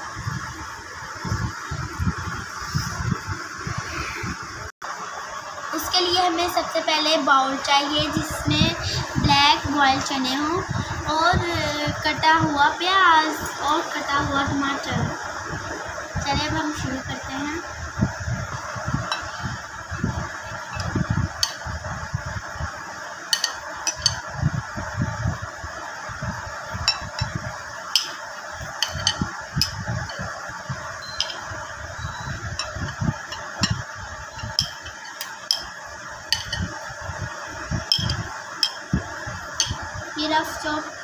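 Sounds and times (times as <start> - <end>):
bowls bumping: 23.3 - 24.2, 28.8 - 29.8, 31.0 - 31.5, 32.5 - 33.8, 34.4 - 35.7, 36.3 - 36.7, 37.9 - 38.8, 39.6 - 39.8
metal spoon scraping glass bowls: 23.3 - 24.2, 28.0 - 28.2, 28.8 - 30.2, 31.0 - 33.8, 34.4 - 35.7, 36.3 - 36.7, 37.9 - 38.8.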